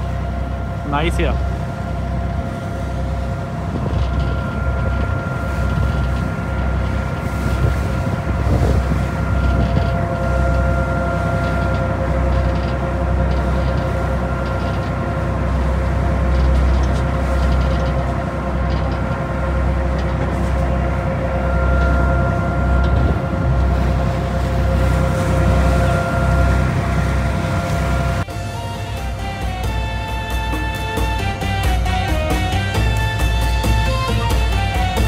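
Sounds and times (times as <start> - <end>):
boat engine rumbling: 0.0 - 35.0
engine whine: 0.0 - 35.0
wind buffeting microphone: 2.0 - 28.6.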